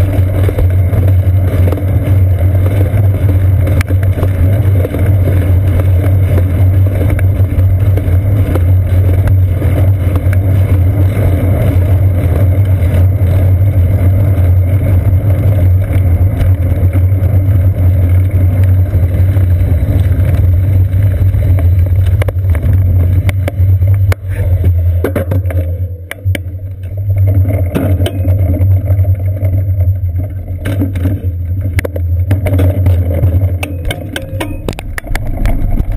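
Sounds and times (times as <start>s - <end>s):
bicycle road vibration rumble: 0.0s - 35.9s
clicks and knocks: 25.0s - 29.6s, 30.2s - 35.9s
wind noise: 31.2s - 35.9s.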